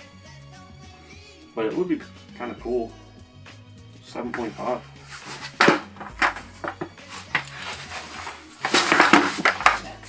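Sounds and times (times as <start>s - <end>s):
skateboard clacking on carpet: 5.1s - 9.9s.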